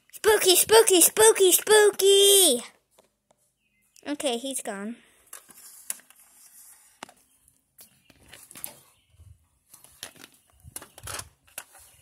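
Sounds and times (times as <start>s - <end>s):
plastic toy clicks and rustles: 9.8s - 12.0s.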